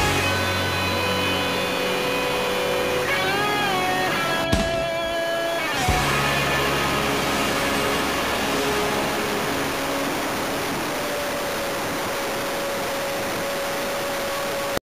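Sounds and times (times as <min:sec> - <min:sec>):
faint motor whine: 0:05.8 - 0:14.8.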